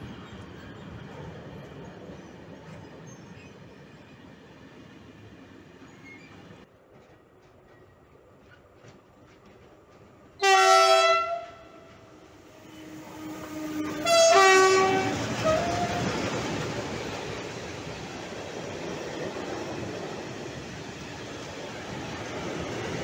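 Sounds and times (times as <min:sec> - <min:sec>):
train wheels clattering over rails: 0:05.8 - 0:10.4
locomotive horn blasts: 0:10.4 - 0:16.1.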